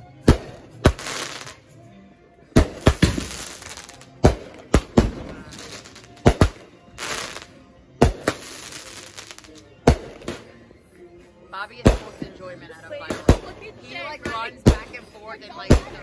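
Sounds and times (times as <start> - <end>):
fireworks crackling: 0.3 - 1.6, 2.6 - 10.5, 11.8 - 16.0
fireworks bangs: 2.6 - 10.5, 11.8 - 12.4, 13.1 - 16.0.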